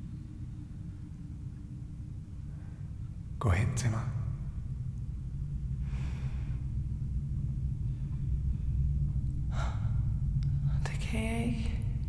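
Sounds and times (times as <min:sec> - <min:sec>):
low rumble: 0:00.0 - 0:12.0
soft breath: 0:05.8 - 0:07.0.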